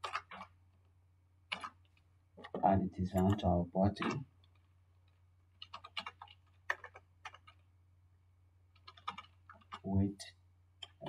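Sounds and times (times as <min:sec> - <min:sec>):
keyboard keys clicking: 0:05.6 - 0:07.6, 0:08.7 - 0:09.9.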